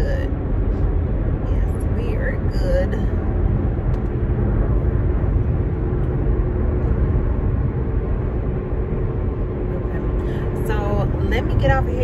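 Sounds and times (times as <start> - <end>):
car road noise: 0.0 - 12.0
faint steady hum: 0.0 - 12.0.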